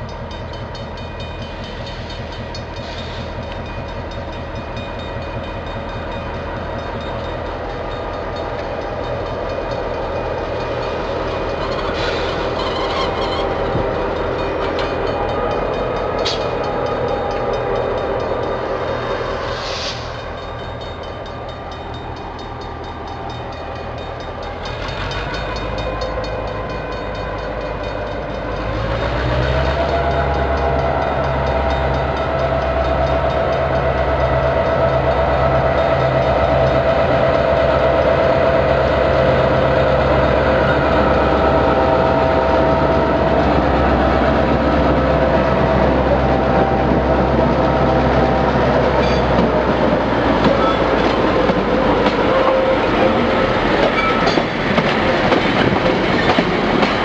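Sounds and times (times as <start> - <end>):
locomotive engine humming: 0.0 - 57.0
wheels rumbling on rails: 0.0 - 57.0.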